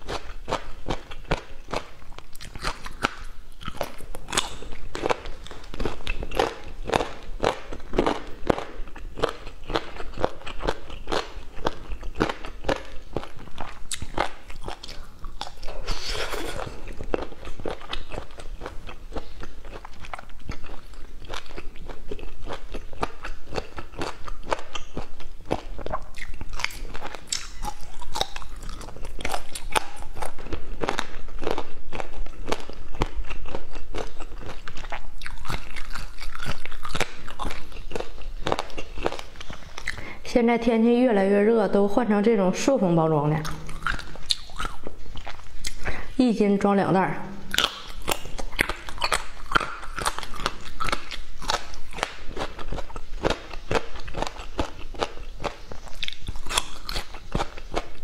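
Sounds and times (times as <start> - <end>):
crunchy chewing: 0.0 - 40.2, 43.4 - 46.2, 47.4 - 58.0
wet mouth clicks: 47.4 - 52.2.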